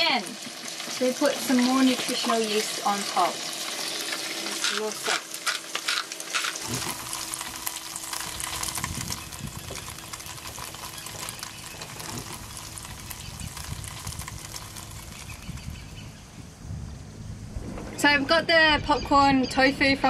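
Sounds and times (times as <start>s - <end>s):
tofu sizzling in a frying pan: 0.0s - 16.1s
low rumble: 6.6s - 20.0s.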